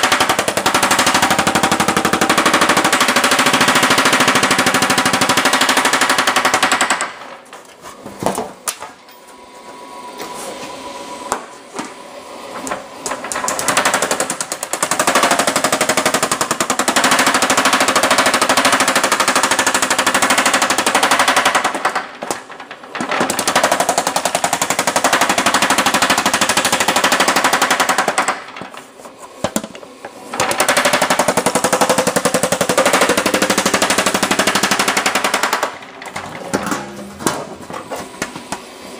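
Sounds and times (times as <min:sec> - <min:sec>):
power hammer blows on sheet metal: 0:00.0 - 0:07.3.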